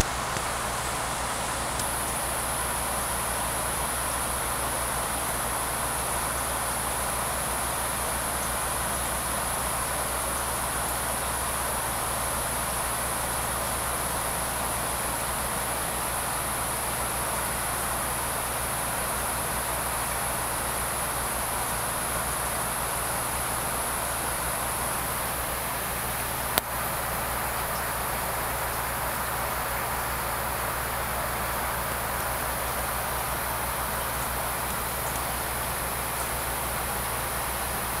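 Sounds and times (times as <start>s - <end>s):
aquarium equipment hum and hiss: 0.0s - 38.0s.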